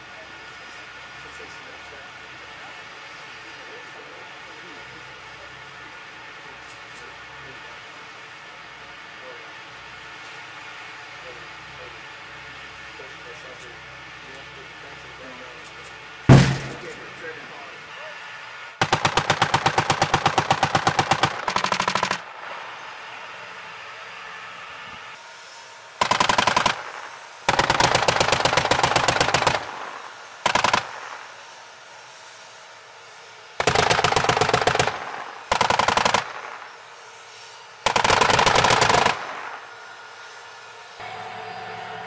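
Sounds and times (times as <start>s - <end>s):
machine guns firing bursts: 18.8s - 22.3s, 26.0s - 31.3s, 33.6s - 36.7s, 37.8s - 39.6s.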